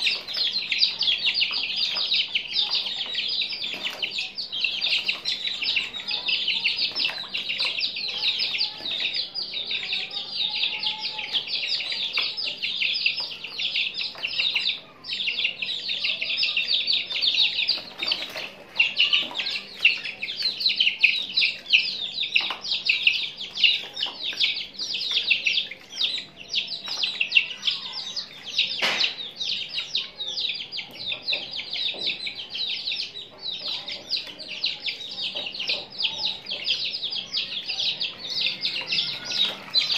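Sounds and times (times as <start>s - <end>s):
water splashing in plastic tub: 0.0s - 9.3s, 16.9s - 21.8s
chicks peeping: 0.0s - 39.9s.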